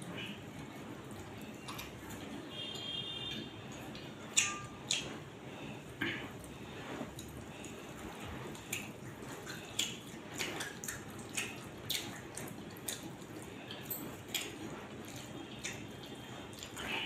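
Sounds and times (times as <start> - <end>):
chewing: 0.2 - 2.4, 5.9 - 17.0
fingers squishing wet food: 8.6 - 16.9.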